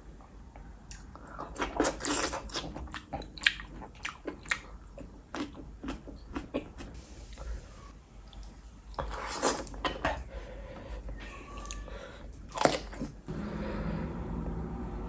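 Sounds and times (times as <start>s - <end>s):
person crunching and chewing food: 0.8s - 7.0s, 12.5s - 13.2s.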